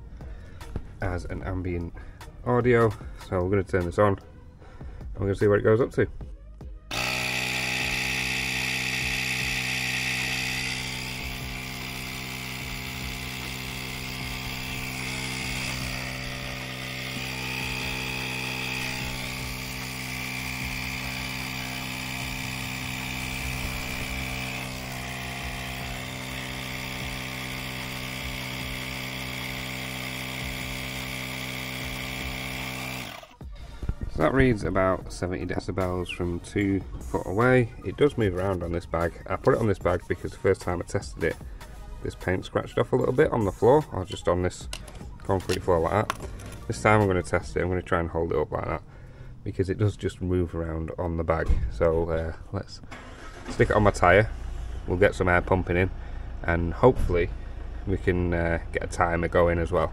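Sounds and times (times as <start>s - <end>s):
electric compressor motor whine: 6.9s - 34.0s.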